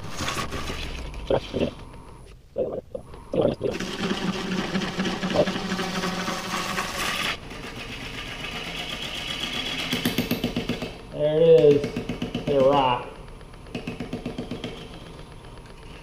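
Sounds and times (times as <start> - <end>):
wood lathe humming: 3.7 - 7.4
gouge chattering on spinning wood: 3.7 - 11.0, 11.8 - 16.0.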